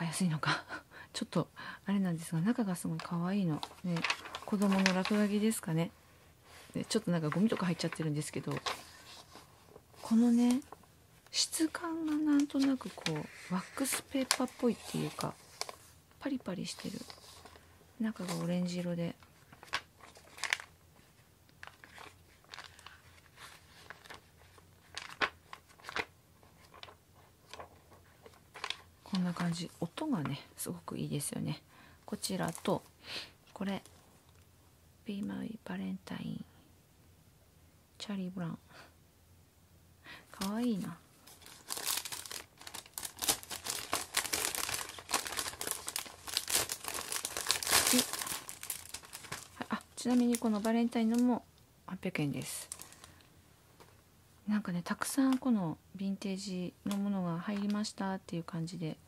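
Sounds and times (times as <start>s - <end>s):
paperback pages turning: 3.0s - 5.5s, 7.3s - 10.8s, 11.6s - 15.9s, 19.4s - 20.7s, 21.6s - 29.5s, 40.4s - 51.3s
plastic bag crinkling: 3.0s - 5.6s, 11.6s - 15.9s, 19.4s - 20.8s, 21.6s - 29.6s, 40.4s - 51.4s, 52.4s - 53.3s.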